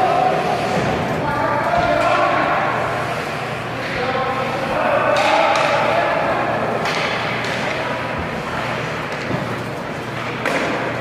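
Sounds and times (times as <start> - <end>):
hockey sticks and puck knocking: 5.1 - 6.0, 6.8 - 9.6, 10.2 - 11.0.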